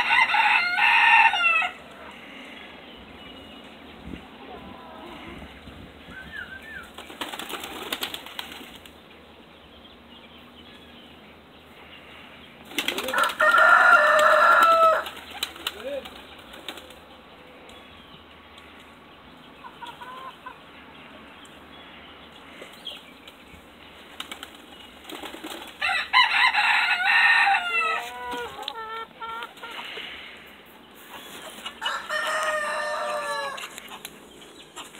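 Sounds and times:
rooster crowing: 0:00.0 - 0:01.9, 0:13.0 - 0:15.1, 0:25.8 - 0:28.6, 0:31.8 - 0:33.7
pigeons flapping wings: 0:06.8 - 0:08.9, 0:12.7 - 0:17.1, 0:24.2 - 0:25.8.

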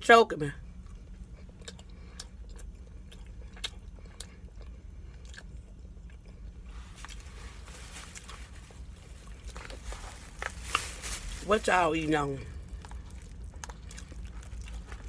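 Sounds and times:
person chewing: 0:00.7 - 0:11.0, 0:12.5 - 0:15.0
soft rustling hiss: 0:06.6 - 0:13.7.

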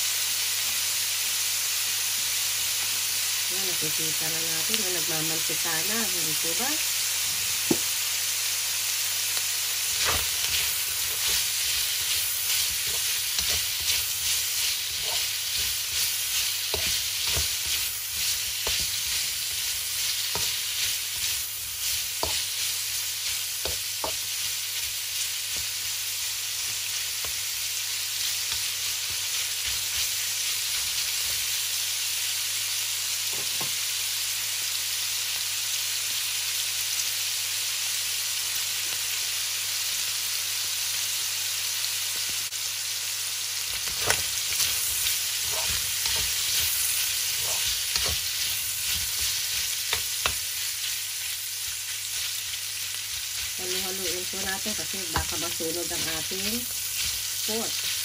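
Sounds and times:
meat sizzling in a wok: 0:00.0 - 0:58.0
spatula scraping a wok: 0:09.9 - 0:27.4, 0:43.7 - 0:58.0.

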